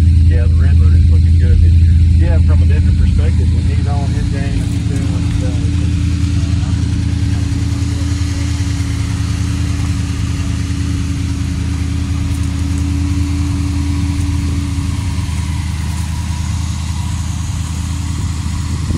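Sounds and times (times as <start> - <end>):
pickup engine idling: 0.0 - 18.9.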